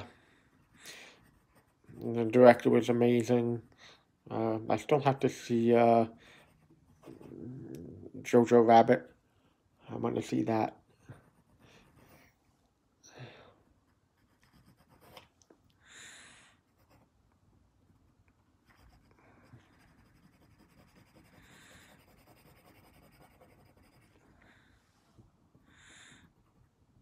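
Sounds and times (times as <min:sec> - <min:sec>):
pencil scratching on paper: 0:00.0 - 0:03.7, 0:04.8 - 0:07.5, 0:10.2 - 0:12.4, 0:13.8 - 0:15.3, 0:16.6 - 0:17.2, 0:17.9 - 0:24.3.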